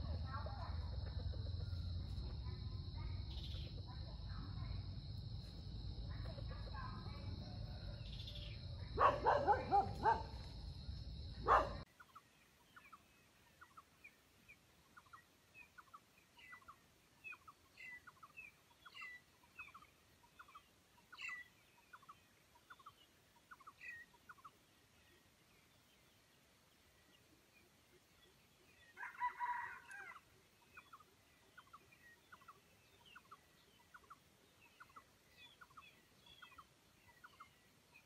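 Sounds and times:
junglefowl cackling calls: 29.0 - 30.3.

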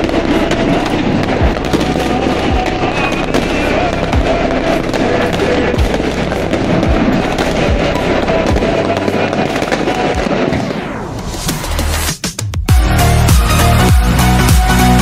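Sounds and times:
deep firework booms: 0.0 - 11.7
firecrackers crackling: 0.0 - 15.0.

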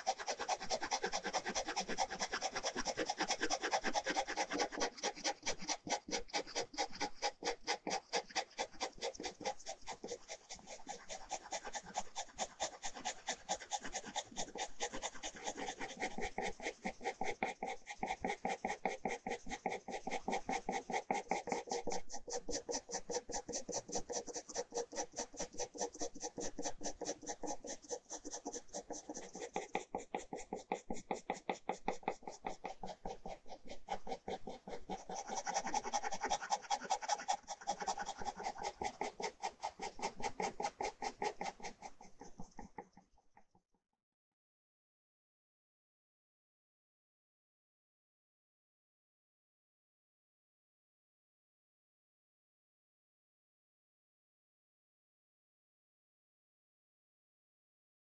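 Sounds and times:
pen scratching on paper: 0.0 - 43.2.

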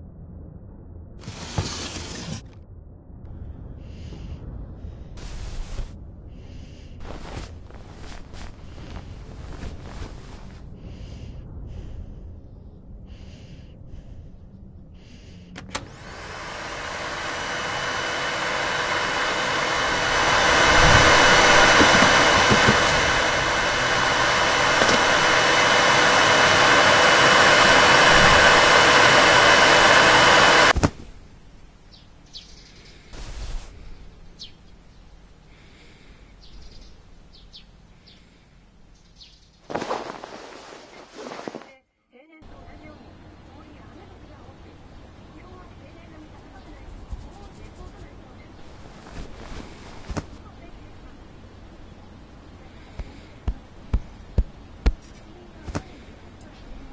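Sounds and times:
vacuum cleaner motor whine: 1.2 - 2.4, 15.6 - 30.8.

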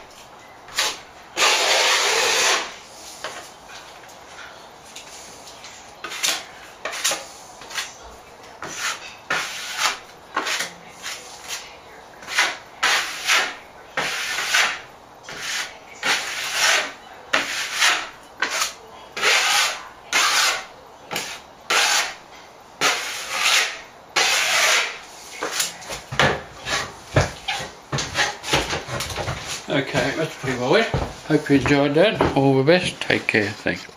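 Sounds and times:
hand sanding plaster with sandpaper: 1.4 - 2.7, 8.6 - 11.6, 12.2 - 22.2, 22.8 - 25.7.

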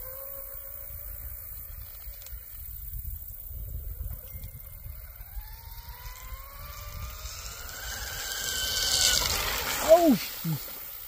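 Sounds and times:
wind rumble on microphone: 0.3 - 10.6
electric motor whining: 3.6 - 11.0.

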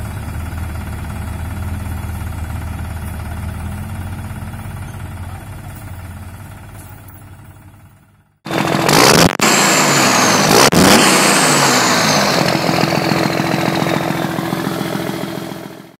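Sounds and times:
high whine gliding downward: 8.5 - 15.7
vehicle engine revving: 8.5 - 16.0.

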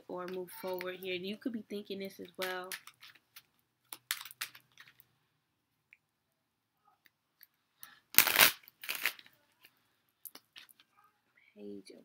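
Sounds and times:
cards shuffling: 2.2 - 5.1, 8.2 - 9.3
card riffling: 2.4 - 5.0, 8.1 - 9.3.

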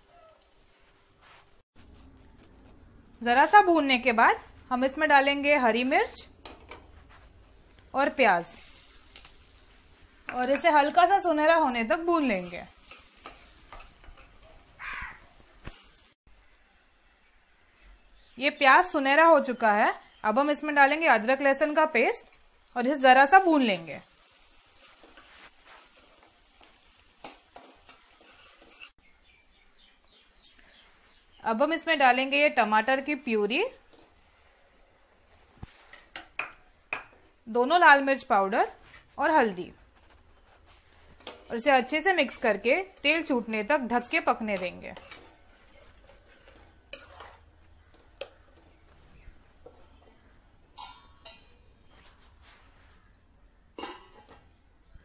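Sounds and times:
onions sizzling in oil: 7.6 - 51.6
ladle scraping a pan: 27.2 - 29.0, 44.6 - 47.6, 49.7 - 51.7.

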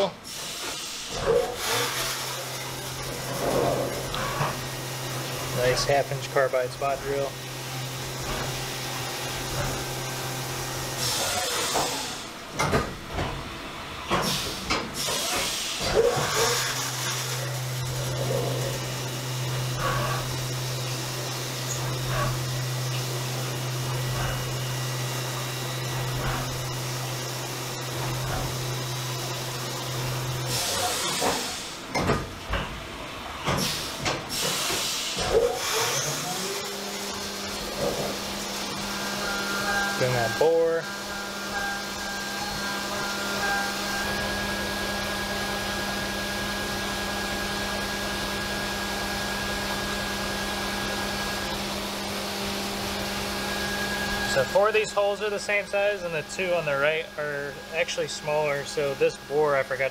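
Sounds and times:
coolant spraying hiss: 0.2 - 12.3, 33.6 - 38.9
steady machine hum: 2.2 - 14.8, 15.8 - 33.4, 36.2 - 59.9.

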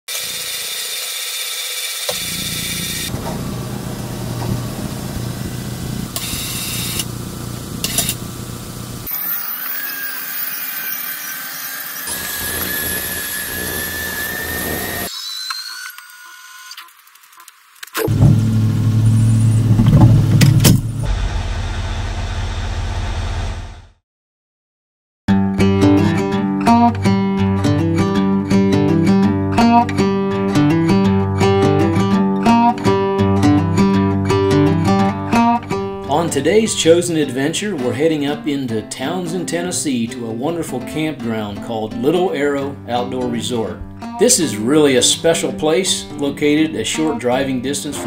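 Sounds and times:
hoist motor humming: 0.1 - 10.8
high whirring bursts: 0.1 - 16.8.

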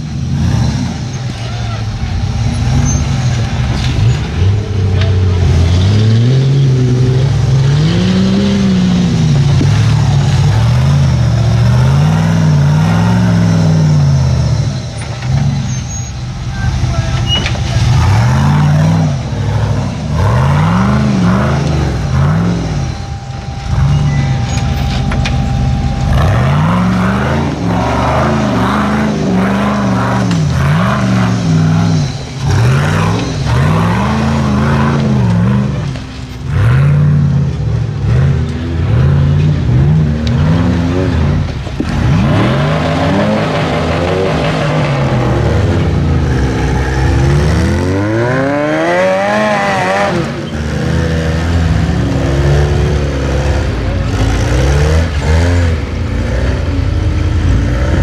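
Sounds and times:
buggy engine revving: 0.0 - 58.0.

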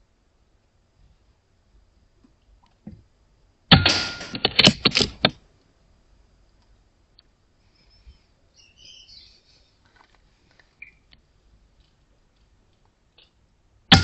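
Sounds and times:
air rifle shot: 3.7 - 5.2
sharp clicks and knocks: 3.7 - 5.4.

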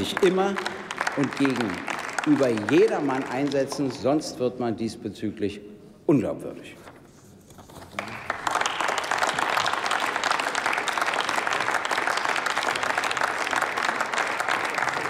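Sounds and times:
crowd applauding: 0.0 - 4.1, 7.9 - 15.0.

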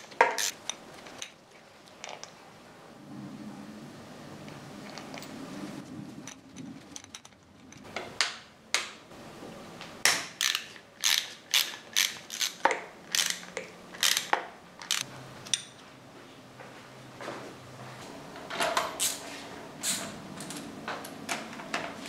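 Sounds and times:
ratchet driver clicking: 10.4 - 15.0.

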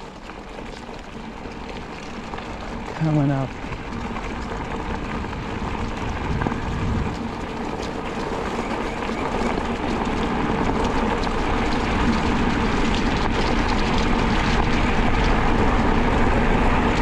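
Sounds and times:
bicycle tyres rolling on gravel: 0.0 - 17.0.

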